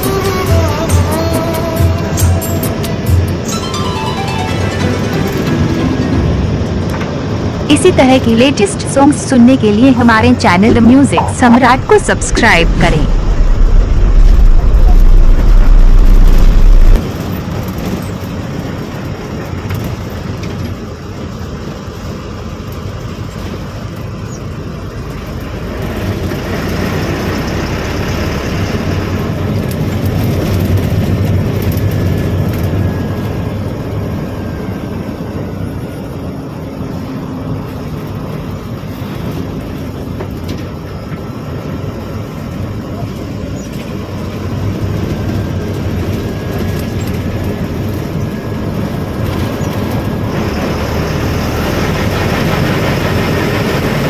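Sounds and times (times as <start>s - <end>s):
loud deep hum: 0.0s - 17.2s
bus engine and road noise: 0.0s - 54.0s.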